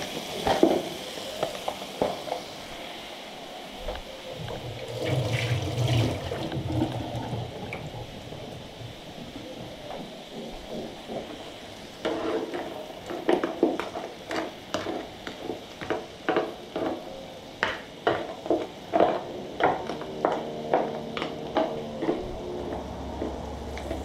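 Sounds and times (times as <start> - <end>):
shrimp sizzling: 0.0 - 24.0
wooden spatula scraping griddle: 12.0 - 17.1.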